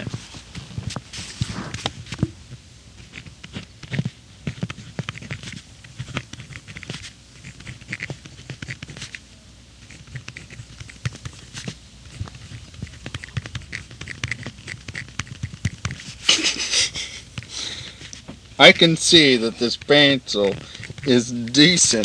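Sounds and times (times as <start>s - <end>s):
pencil scratching on paper: 3.0s - 9.2s, 9.8s - 16.6s, 18.6s - 22.0s
pencil tip ticks: 3.8s - 9.2s, 9.8s - 16.0s, 18.7s - 22.0s.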